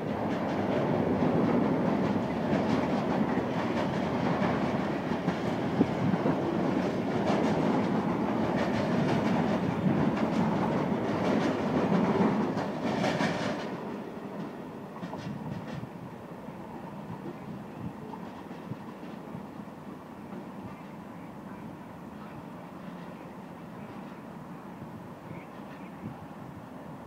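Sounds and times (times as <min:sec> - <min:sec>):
wheels clacking over rail joints: 0:00.0 - 0:15.9
freight train wagons rumbling: 0:00.0 - 0:27.0.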